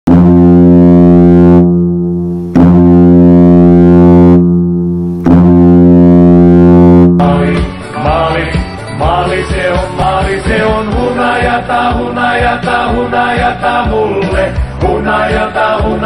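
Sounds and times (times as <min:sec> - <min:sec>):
goal horn blasts: 0:00.1 - 0:07.4
goal song music: 0:00.1 - 0:16.0.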